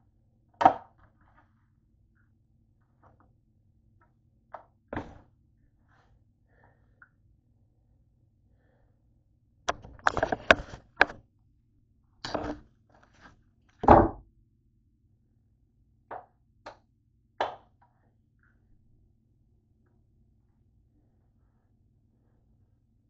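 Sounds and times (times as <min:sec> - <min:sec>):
cutting board thump: 0:05.0 - 0:05.2, 0:13.8 - 0:14.2.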